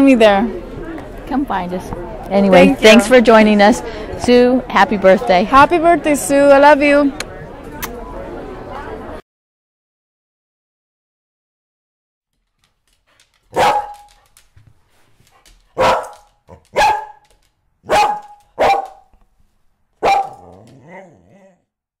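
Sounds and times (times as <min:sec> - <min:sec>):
dog barking: 0:13.5 - 0:14.2, 0:15.8 - 0:19.1, 0:20.0 - 0:21.6.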